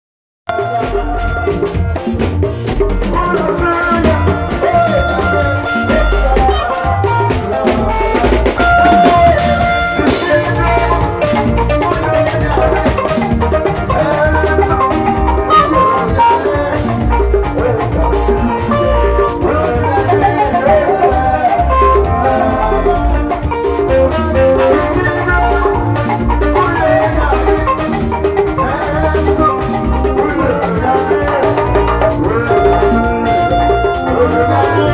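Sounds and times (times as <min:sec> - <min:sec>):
drum kit and djembe: 0:00.5 - 0:34.9
electric bass: 0:00.5 - 0:34.9
keyboard melody: 0:00.5 - 0:34.9.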